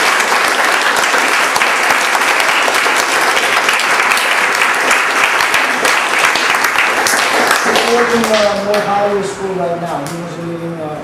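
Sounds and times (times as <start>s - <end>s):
crowd clapping: 0.0s - 9.0s.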